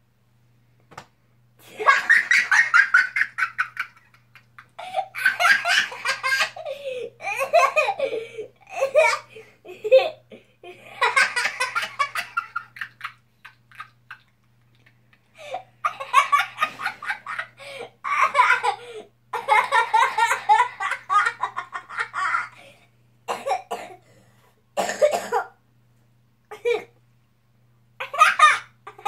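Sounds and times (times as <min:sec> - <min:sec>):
young boy laughing: 0:01.6 - 0:22.7, 0:26.5 - 0:27.0, 0:28.0 - 0:29.0.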